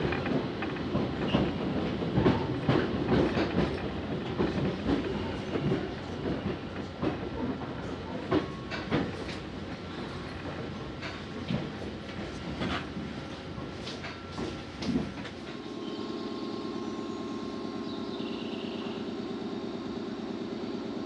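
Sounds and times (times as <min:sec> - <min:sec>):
wheels clacking over rail joints: 0:00.0 - 0:15.6
train rumble from inside: 0:00.0 - 0:21.0.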